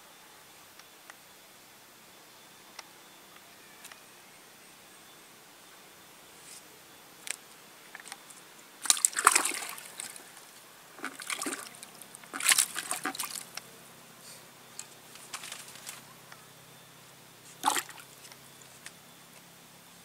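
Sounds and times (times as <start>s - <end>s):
fish splashing in bucket of water: 8.8s - 10.4s, 11.0s - 13.6s, 15.2s - 16.0s, 17.6s - 18.2s.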